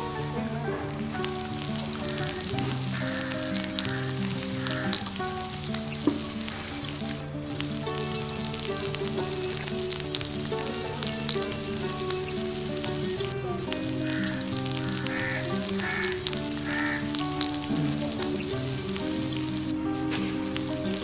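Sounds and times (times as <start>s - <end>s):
background music: 0.0s - 21.0s
oil sizzling and crackling: 0.0s - 21.0s
short raspy calls: 2.0s - 5.5s, 13.8s - 18.3s.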